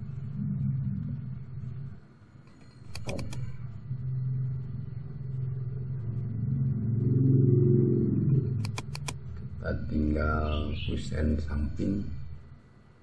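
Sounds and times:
computer mouse clicks: 0:02.4 - 0:03.5, 0:08.6 - 0:09.2
low engine rumble: 0:03.4 - 0:10.5.

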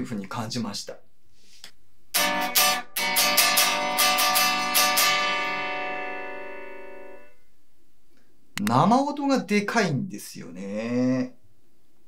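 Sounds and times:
unplugged electric guitar strumming: 0:02.1 - 0:07.4.

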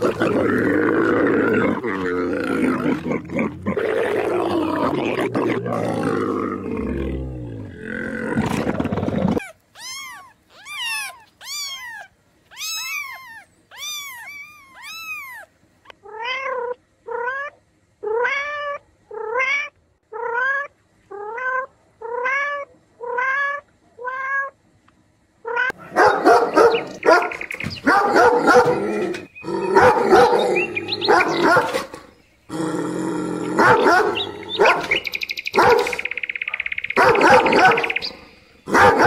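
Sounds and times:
dense noisy animal calls: 0:00.0 - 0:15.5, 0:25.7 - 0:39.0
short pitched animal calls: 0:09.4 - 0:15.5
short rising calls: 0:09.4 - 0:15.5.

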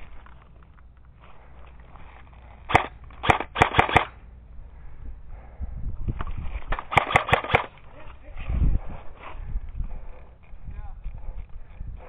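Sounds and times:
airsoft rifle shots: 0:02.7 - 0:04.2, 0:06.7 - 0:07.8.

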